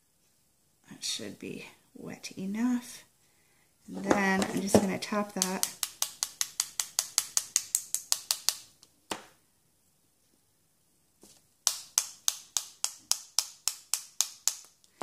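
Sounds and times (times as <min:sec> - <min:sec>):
paintbrush tapping clicks: 0:04.5 - 0:08.9, 0:11.6 - 0:15.0.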